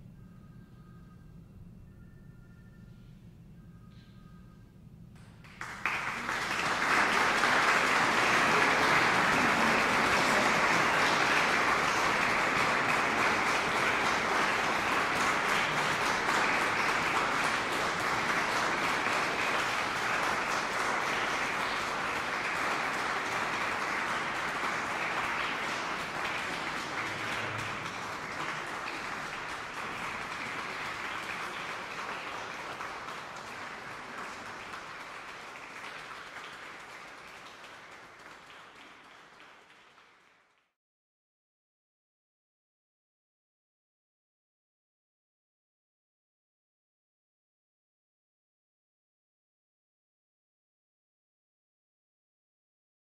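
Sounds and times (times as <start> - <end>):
audience applauding: 5.4 - 40.6.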